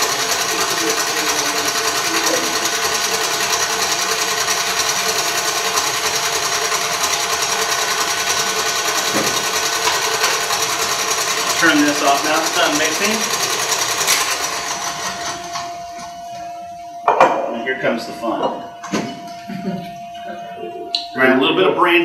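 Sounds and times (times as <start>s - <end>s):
electric stand mixer running: 0.0s - 17.1s.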